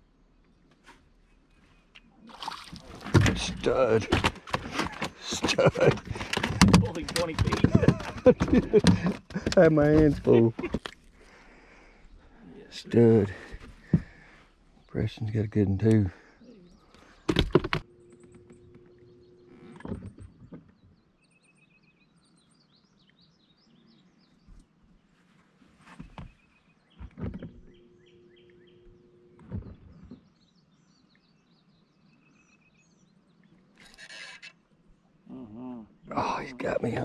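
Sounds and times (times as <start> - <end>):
birds chirping and singing: 26.1 - 34.6.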